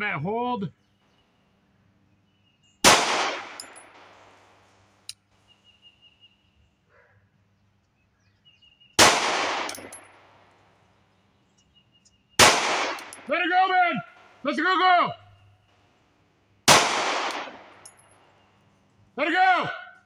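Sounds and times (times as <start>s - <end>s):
pistol shots with echo: 2.8s - 4.6s, 9.0s - 10.5s, 12.4s - 13.3s, 16.7s - 18.3s.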